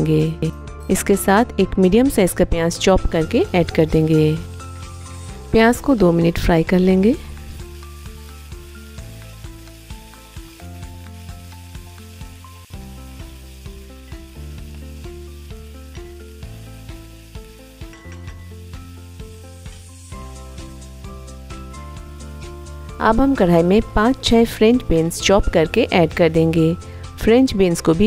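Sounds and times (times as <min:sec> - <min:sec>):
background music: 0:00.0 - 0:28.0
onion sizzling in oil: 0:01.8 - 0:28.0.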